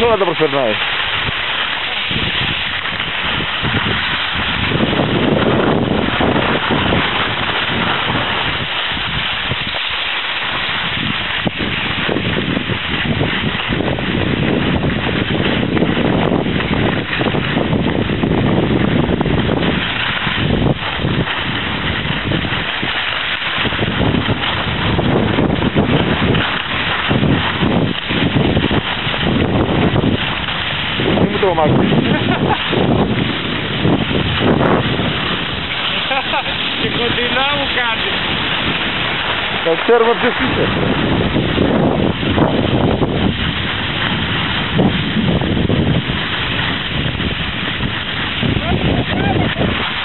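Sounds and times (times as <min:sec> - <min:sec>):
skis sliding on packed snow: 0:00.0 - 0:50.0
wind buffeting microphone: 0:00.0 - 0:50.0.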